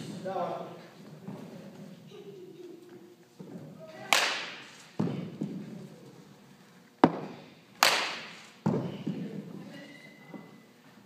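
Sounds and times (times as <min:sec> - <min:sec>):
bat cracking a ball: 0:04.1 - 0:05.6, 0:07.0 - 0:08.9.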